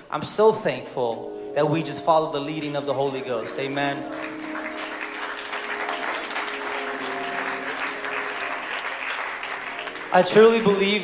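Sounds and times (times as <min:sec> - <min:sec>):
held musical notes: 0:01.1 - 0:11.0
congregation applauding: 0:03.0 - 0:11.0.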